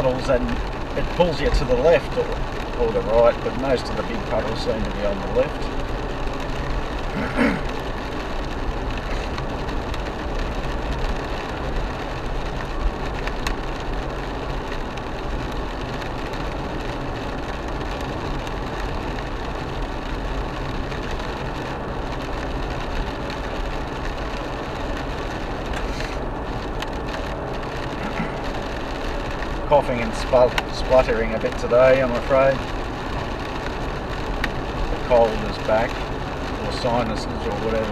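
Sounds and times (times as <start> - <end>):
tyre hiss on wet road: 0.0 - 10.4, 22.4 - 37.9
engine hum: 0.0 - 37.9.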